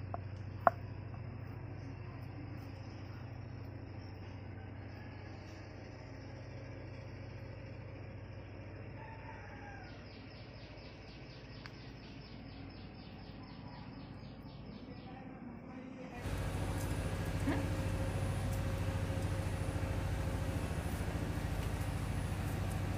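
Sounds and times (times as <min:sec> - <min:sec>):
rooster crowing faintly: 0:04.2 - 0:06.1, 0:08.9 - 0:10.4
low hum and hiss: 0:14.4 - 0:22.9.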